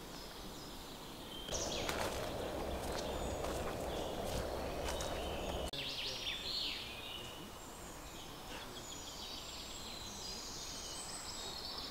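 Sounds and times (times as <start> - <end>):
birds singing: 0.0 - 11.9
rustling footsteps: 1.5 - 5.7.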